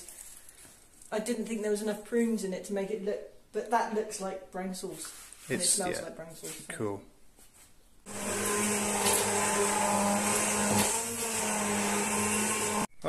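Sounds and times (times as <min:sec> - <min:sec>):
electric stick blender running: 0:08.1 - 0:12.9.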